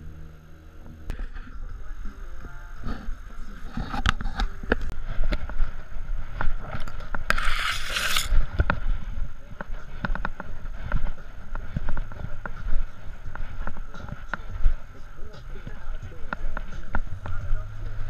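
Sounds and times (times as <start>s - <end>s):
camera mount rubbing and rumbling: 3.7s - 5.6s, 6.4s - 8.9s.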